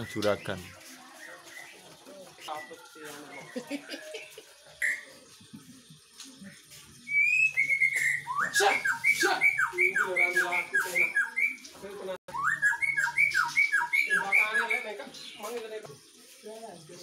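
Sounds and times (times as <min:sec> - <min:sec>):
songbird singing whistled notes: 0:00.0 - 0:05.2, 0:07.0 - 0:11.7, 0:12.3 - 0:15.5.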